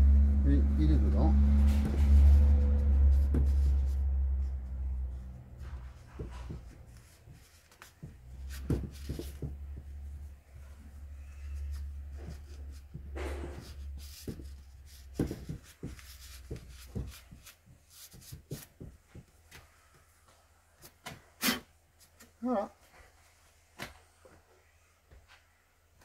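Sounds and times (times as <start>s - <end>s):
cloth rubbing on metal: 0.2s - 19.1s.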